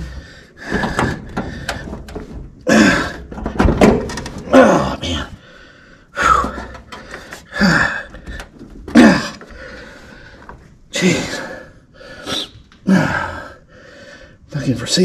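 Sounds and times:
man grunting with effort: 2.6 - 3.4, 4.4 - 5.4, 7.5 - 8.2, 8.9 - 9.5.

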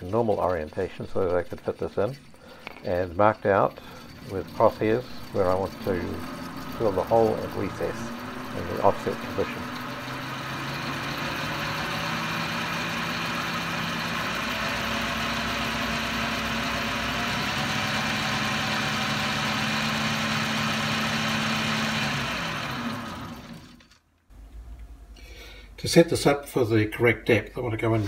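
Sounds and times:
metal lathe humming and whining: 0.0 - 23.9.

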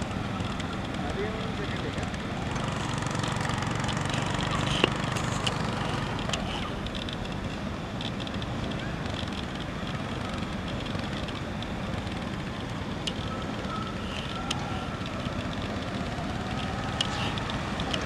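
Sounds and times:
motorcycle engine running: 0.0 - 18.0
road and wind noise: 0.0 - 18.0
sharp clicks: 8.0 - 18.0.

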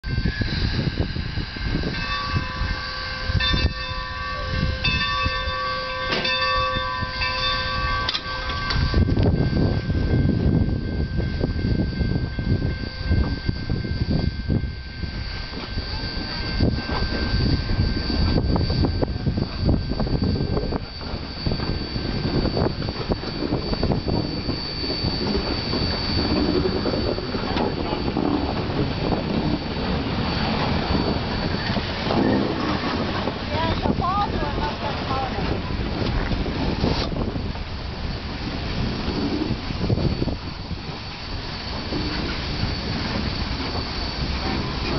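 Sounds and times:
locomotive bell ringing: 0.0 - 44.9
steam locomotive rumble and chuff: 0.0 - 44.9
thin steady high tone: 0.0 - 44.9.

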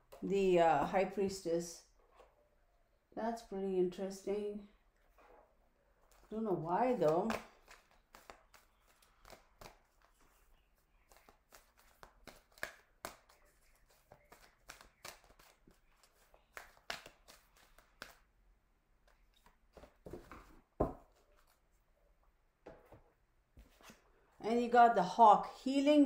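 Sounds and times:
playing cards being shuffled: 7.0 - 10.4, 11.0 - 18.3.

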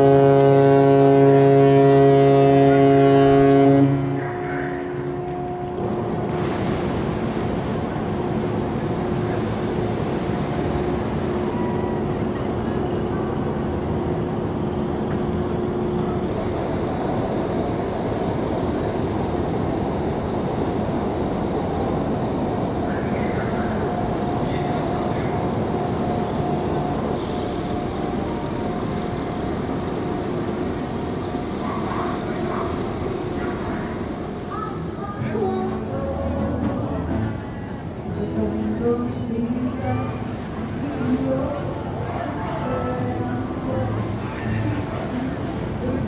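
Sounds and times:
ship whistle deep blast: 0.0 - 4.5.

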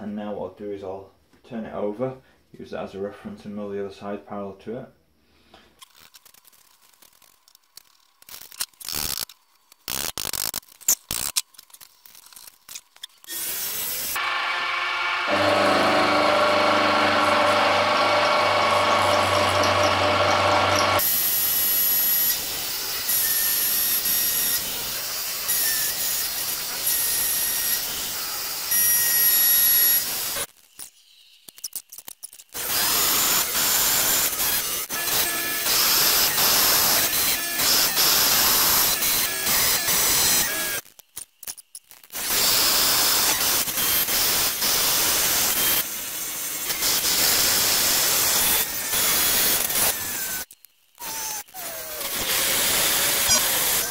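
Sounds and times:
milling machine motor whine: 14.2 - 21.2.

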